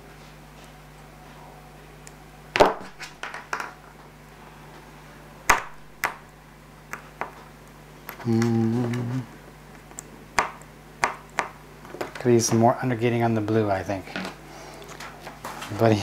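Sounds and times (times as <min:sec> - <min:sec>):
man humming: 0:08.2 - 0:09.4.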